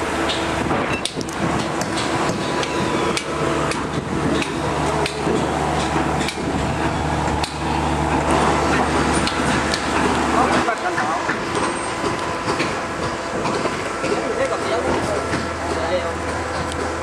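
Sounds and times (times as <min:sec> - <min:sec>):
hammer blows: 0:00.0 - 0:17.0
low motor hum: 0:00.0 - 0:17.0.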